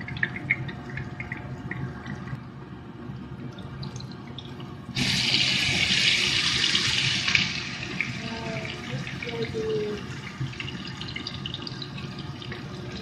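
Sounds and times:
hot oil sizzling: 5.0 - 12.0.

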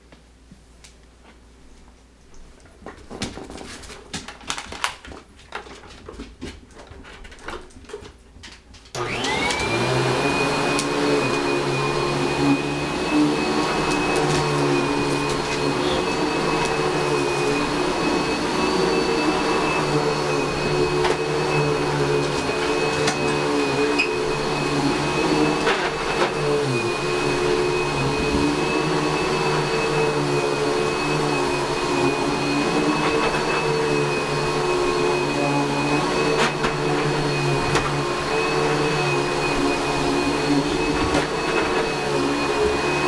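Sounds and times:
vacuum cleaner motor whine: 8.9 - 43.0.

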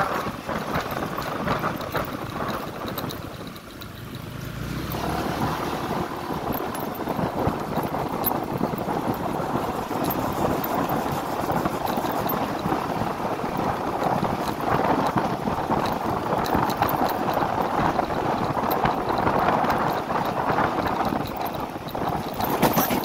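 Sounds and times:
scooter engine running: 0.0 - 23.0
tyre noise: 0.0 - 23.0
wind noise on microphone: 0.0 - 23.0.

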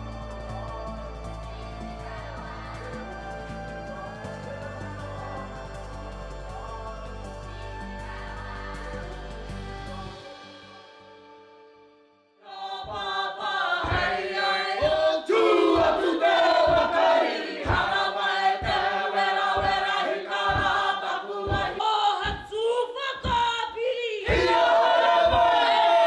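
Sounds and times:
group chanting and shouting: 0.0 - 10.3, 12.4 - 26.0
background music: 0.0 - 23.5, 24.2 - 26.0
heavy thumps: 12.9 - 23.7.

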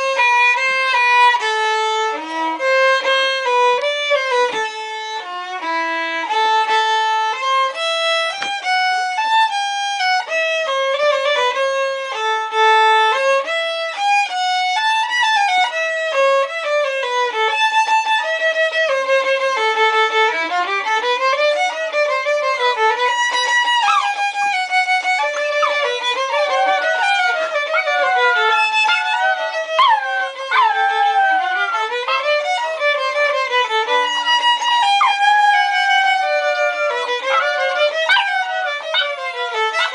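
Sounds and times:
violin melody: 0.0 - 39.9
puppies howling and yipping: 23.8 - 24.2, 25.1 - 32.5, 34.6 - 39.9.

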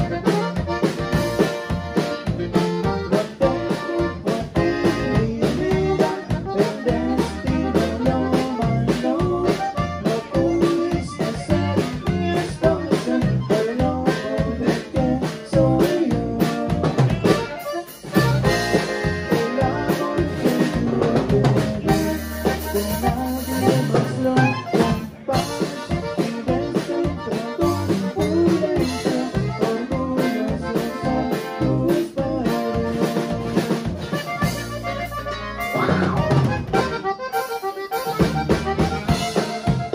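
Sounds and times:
acoustic guitar: 0.0 - 39.9
button accordion: 0.0 - 39.9
drum kit: 0.0 - 39.9
electric bass: 0.0 - 39.9
man singing: 2.8 - 17.6, 18.2 - 34.1.

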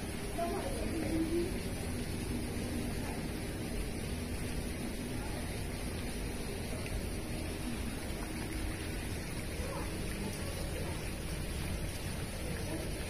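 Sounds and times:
faint distant voices: 0.0 - 13.0
steady background noise: 0.0 - 13.0.

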